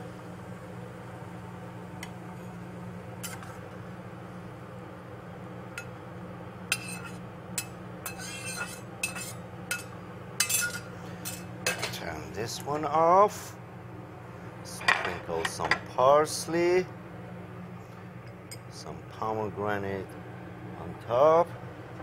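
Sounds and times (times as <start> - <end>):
metal spatula scraping skillet: 8.0 - 9.4.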